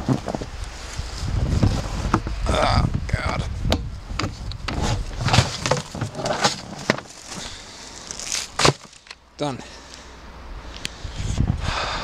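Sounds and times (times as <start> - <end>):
bin lid scraping: 4.2 - 7.4
packed snow crunching: 4.8 - 9.0.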